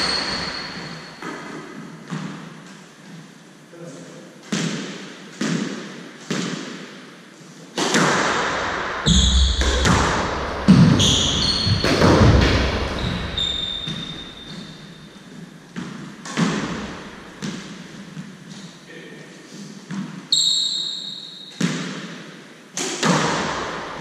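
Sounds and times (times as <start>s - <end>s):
shoes squeaking on wooden floor: 0.0s - 2.3s, 10.7s - 12.2s, 12.8s - 18.8s
squash ball smacks echoing: 4.4s - 7.0s, 7.7s - 15.0s, 15.7s - 18.3s, 21.5s - 24.0s.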